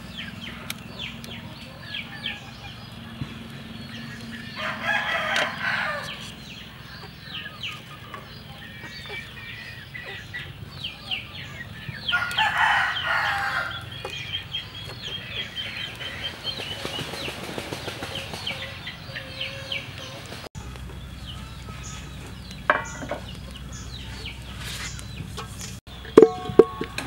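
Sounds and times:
chickens clucking: 0:00.0 - 0:27.0
rooster crowing: 0:04.3 - 0:07.4, 0:12.0 - 0:14.0.

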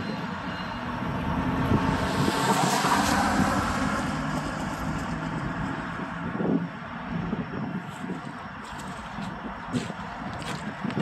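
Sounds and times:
diesel locomotives humming: 0:00.0 - 0:11.0.

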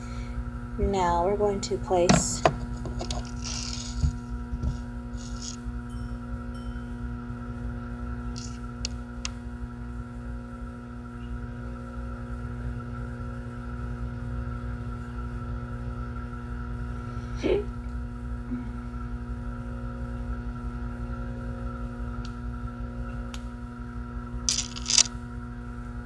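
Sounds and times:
singing bowl ringing: 0:05.1 - 0:08.8.

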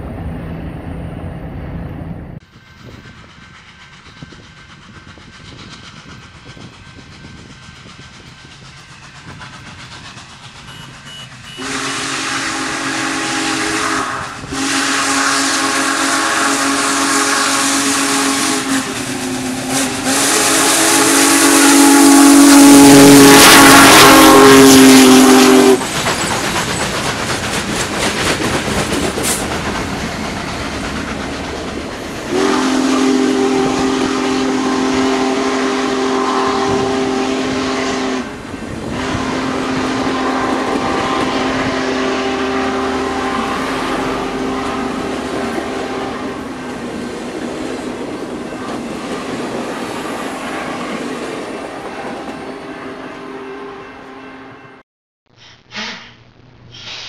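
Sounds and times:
train rumbling: 0:00.0 - 0:54.8
steam hissing: 0:02.4 - 0:51.0, 0:56.7 - 0:57.0
steam whistle chord: 0:10.7 - 0:25.8, 0:32.3 - 0:46.6.

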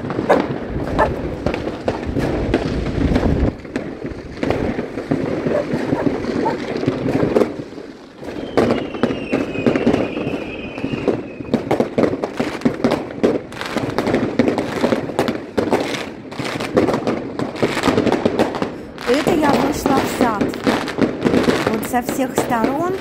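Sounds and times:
fireworks bangs and crackles: 0:00.0 - 0:23.0
falling firework whistle: 0:08.2 - 0:11.8.

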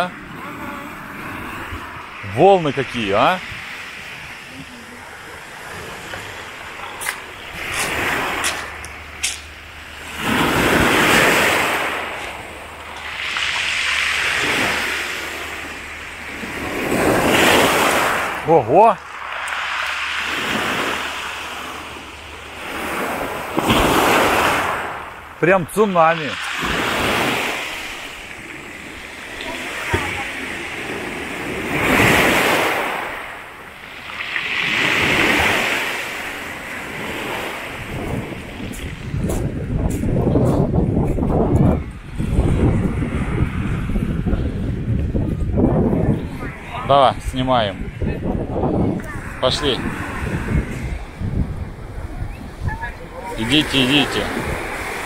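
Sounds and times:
surf breaking on pebble beach: 0:05.4 - 0:39.2.

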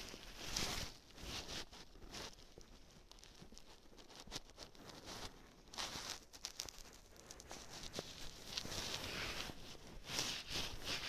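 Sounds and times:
faint rustling: 0:00.0 - 0:11.0.

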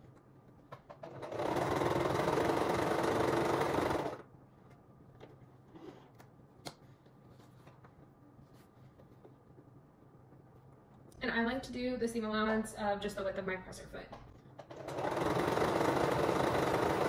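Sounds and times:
electric sewing machine running: 0:01.0 - 0:04.2, 0:14.6 - 0:17.0.

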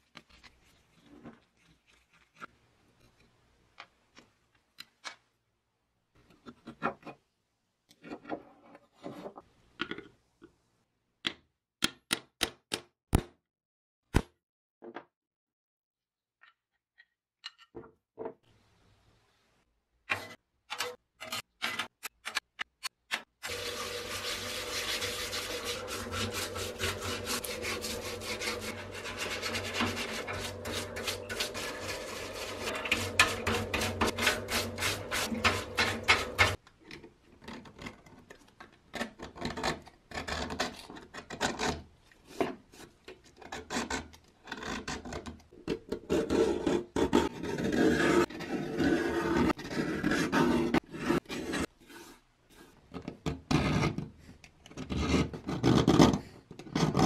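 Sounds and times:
blade scraping paint off metal: 0:23.4 - 0:36.6
pump hum: 0:23.5 - 0:36.6
stiff brush scrubbing: 0:23.5 - 0:36.6.

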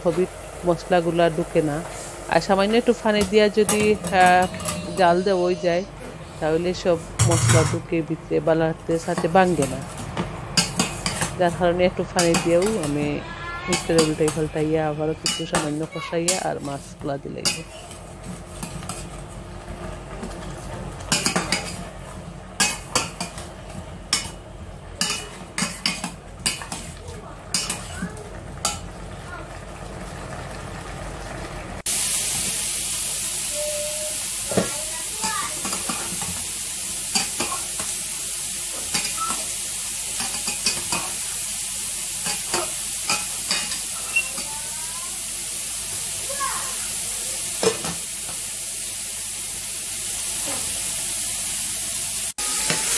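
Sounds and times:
loud sizzle: 0:00.0 - 0:52.9
spatula scraping saucepan: 0:03.2 - 0:05.8, 0:10.6 - 0:19.1.

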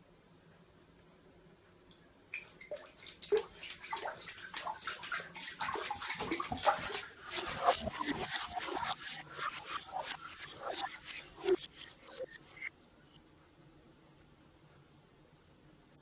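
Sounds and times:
dog splashing in bathwater: 0:02.3 - 0:11.4.

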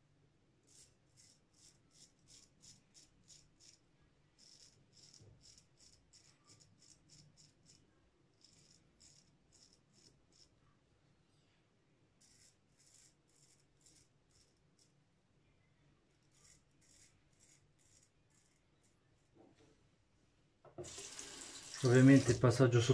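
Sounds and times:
razor scraping stubble: 0:00.7 - 0:03.8, 0:04.4 - 0:10.5, 0:12.2 - 0:14.9, 0:16.2 - 0:18.9.

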